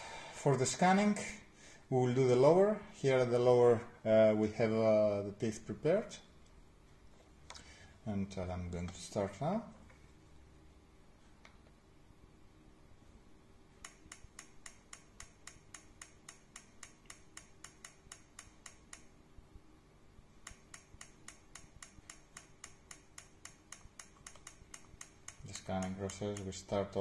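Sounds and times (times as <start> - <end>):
low steady hum: 0.0 - 27.0
faint rapid ticking: 13.8 - 19.2, 20.4 - 27.0.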